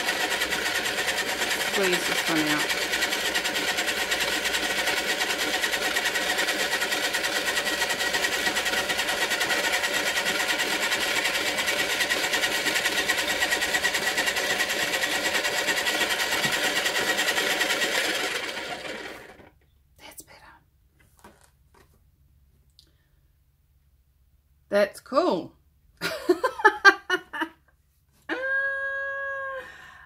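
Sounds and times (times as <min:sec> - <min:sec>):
pottery wheel motor whir: 0:00.0 - 0:19.6.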